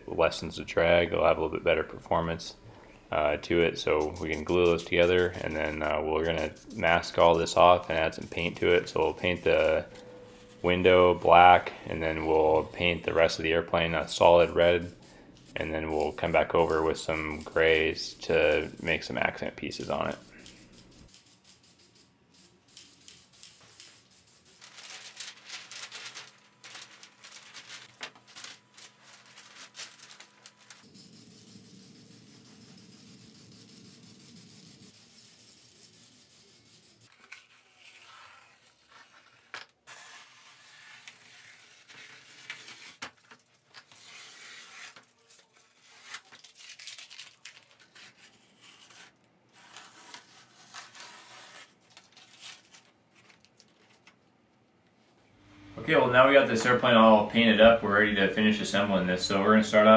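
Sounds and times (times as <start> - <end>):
spray paint can hissing: 4.0 - 7.5, 20.0 - 24.7, 30.8 - 37.1
masking tape peeling: 19.8 - 54.1.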